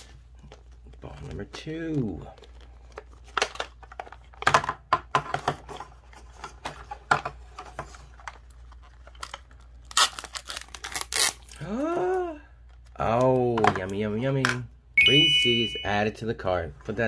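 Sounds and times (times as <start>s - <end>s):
foil bag crackling and tearing: 9.9s - 11.5s.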